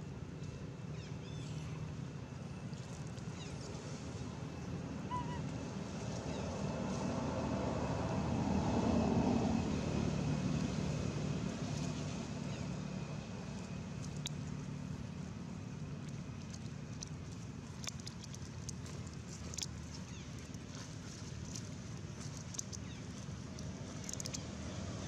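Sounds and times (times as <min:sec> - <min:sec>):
vehicle engine rumble: 0:00.0 - 0:25.0.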